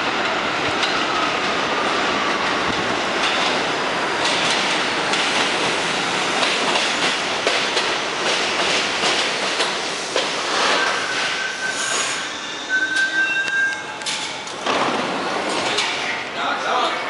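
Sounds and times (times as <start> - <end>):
train wheels rumbling on rail: 0.0 - 17.0
rail-joint clicks: 4.2 - 5.5, 6.4 - 11.0, 12.8 - 16.0.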